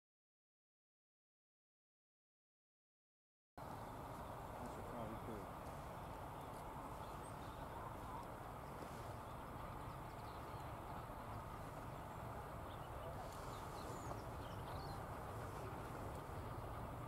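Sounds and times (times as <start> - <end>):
distant diesel locomotive rumble: 3.6 - 17.0
noise haze: 3.6 - 17.0
bird chirps: 3.7 - 16.8.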